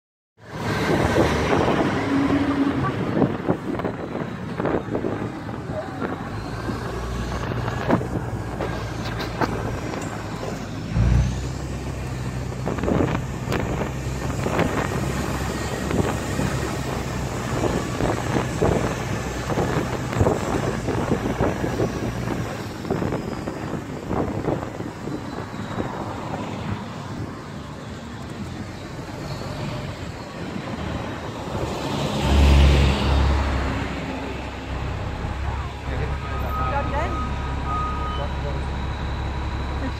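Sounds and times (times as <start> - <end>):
bus engine humming: 0.4 - 39.9
street traffic: 0.4 - 39.9
wind on microphone: 0.5 - 27.5.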